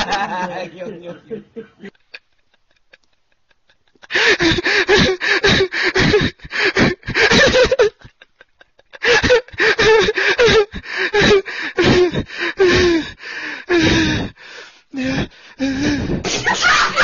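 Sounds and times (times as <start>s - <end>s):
young man laughing: 0.0s - 12.1s, 16.2s - 17.0s.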